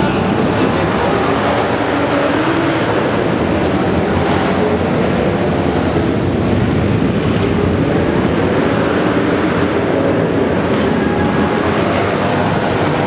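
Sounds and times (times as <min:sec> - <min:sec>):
racing motorcycle engines: 0:00.0 - 0:13.0.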